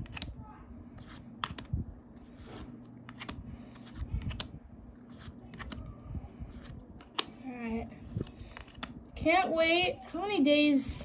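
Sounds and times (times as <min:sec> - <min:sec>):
cards rustling over a stack: 0:00.9 - 0:05.8, 0:08.1 - 0:09.0.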